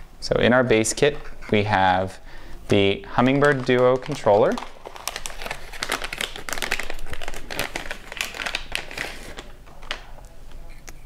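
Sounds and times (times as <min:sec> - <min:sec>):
plastic bag crinkling: 0:02.8 - 0:10.4.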